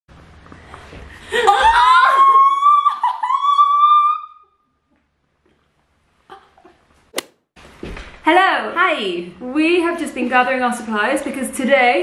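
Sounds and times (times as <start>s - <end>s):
sharp click: 7.2s - 7.4s.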